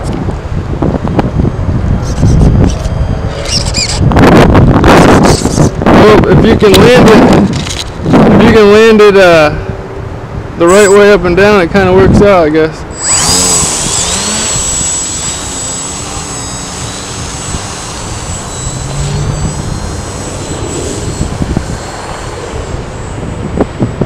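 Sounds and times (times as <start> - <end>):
wind on microphone: 0.0 - 24.0
model plane motor whining: 1.0 - 8.1, 10.6 - 11.1, 12.9 - 24.0.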